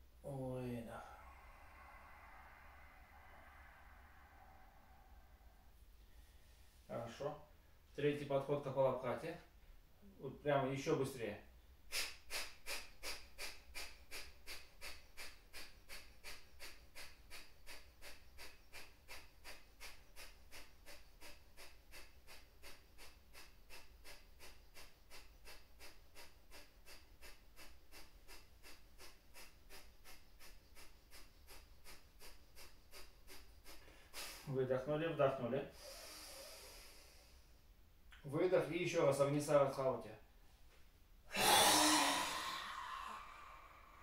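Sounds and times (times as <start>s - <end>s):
forceful exhalations through nose: 0.8s - 6.9s, 11.9s - 34.6s, 35.7s - 37.6s, 41.3s - 44.0s.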